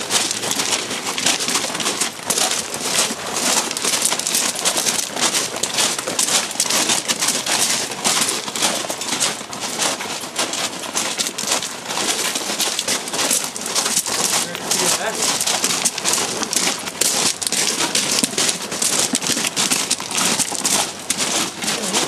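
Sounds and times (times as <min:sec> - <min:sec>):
footsteps crunching on gravel: 0:00.0 - 0:22.0.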